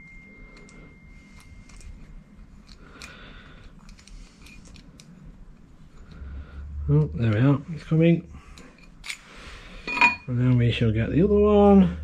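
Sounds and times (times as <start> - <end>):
hex key clicking and scraping: 0.4 - 6.2.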